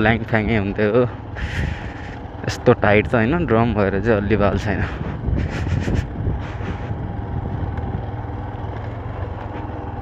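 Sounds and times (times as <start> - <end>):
motorcycle engine running: 0.0 - 10.0
rattles on rough gravel: 0.0 - 10.0.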